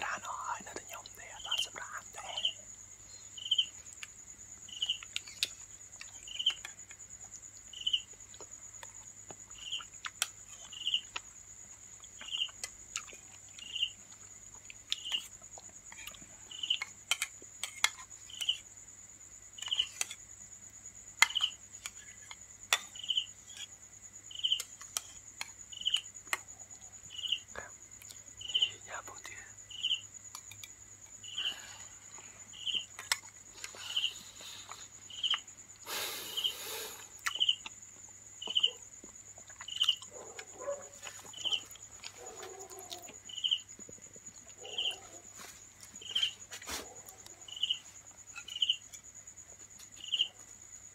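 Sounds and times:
crickets chirping: 0.0 - 50.9
insect trill: 0.0 - 50.9
clicks of eating: 4.9 - 18.6, 28.0 - 28.2, 31.4 - 43.2.

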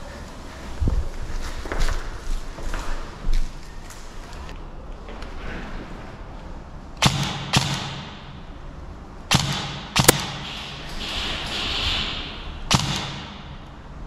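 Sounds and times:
airsoft rifle shots: 7.0 - 8.4, 9.3 - 11.1, 12.7 - 13.7.

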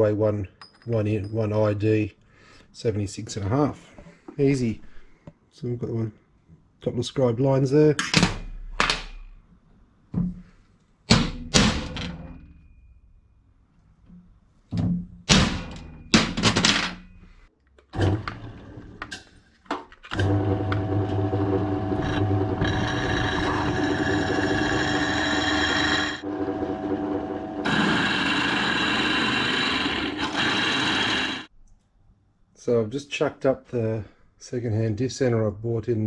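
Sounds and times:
drill press drilling steel: 20.1 - 31.5.

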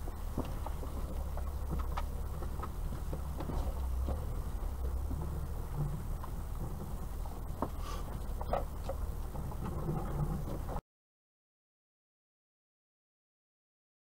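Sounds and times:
car engine and road rumble: 0.0 - 10.8.

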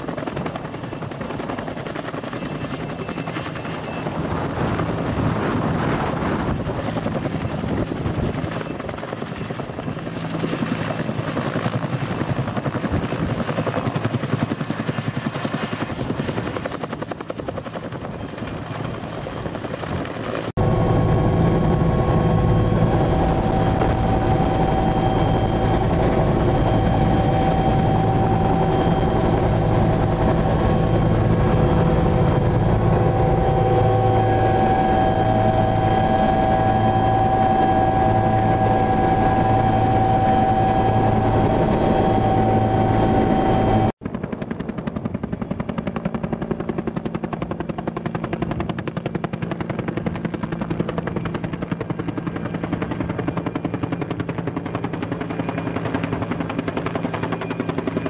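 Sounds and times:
helicopter rotor and turbine noise: 0.0 - 58.0.

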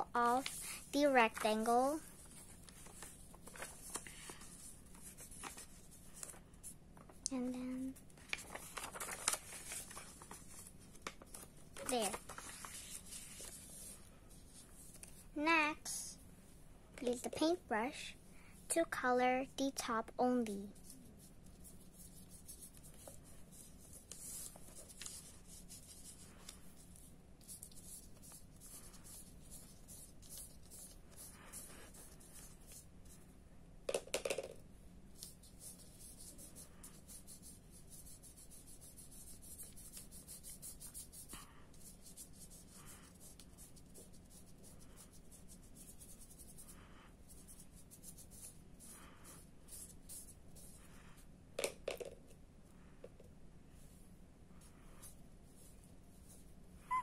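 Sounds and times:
paintbrush strokes on paper: 9.6 - 16.2, 19.5 - 33.3, 35.2 - 51.3, 53.7 - 56.7.

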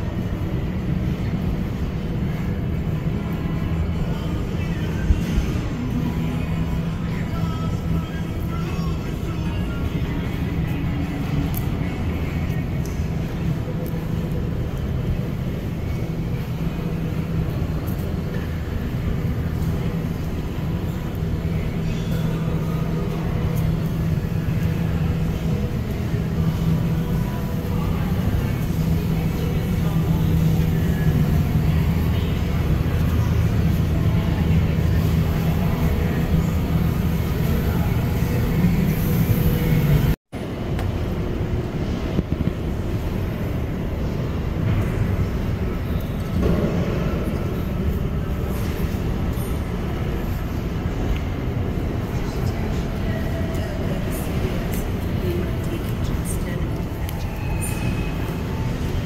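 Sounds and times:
low hum of indoor hall: 0.0 - 59.0.

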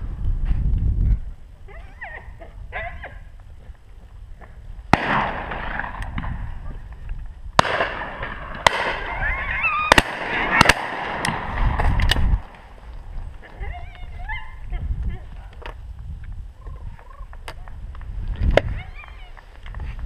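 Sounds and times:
shotgun shots echoing: 4.9 - 6.4, 7.6 - 12.7.

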